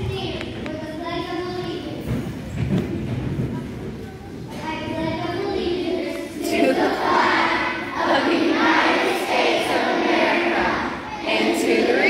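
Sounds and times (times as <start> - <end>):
children singing in unison: 5.5 - 12.0.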